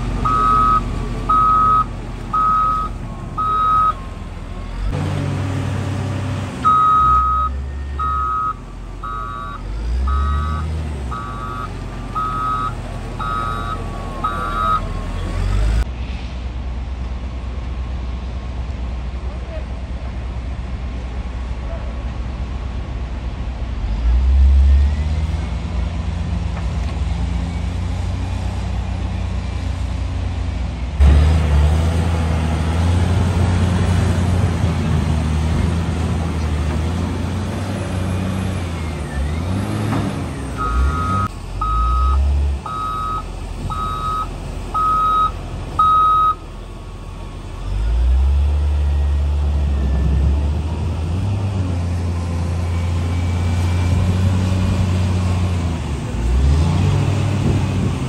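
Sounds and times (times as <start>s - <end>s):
truck engine droning: 0.0s - 58.0s
reversing alarm beeping: 0.2s - 4.0s, 6.6s - 15.2s, 40.6s - 47.0s.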